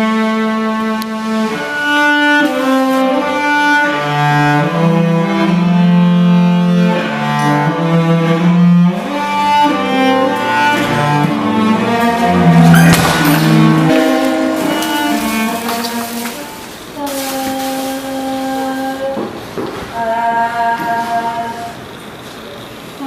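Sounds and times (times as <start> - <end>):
cello bowed melody: 0.0 - 22.0.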